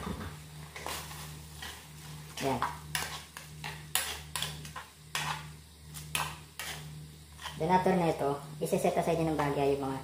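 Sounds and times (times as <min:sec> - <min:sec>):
wet stirring and scraping: 0:00.7 - 0:07.8.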